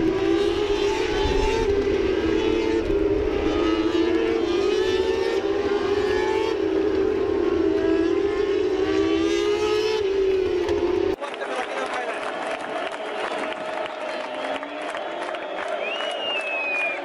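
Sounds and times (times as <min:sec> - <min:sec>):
racing motorcycles at high revs: 0:00.0 - 0:11.2.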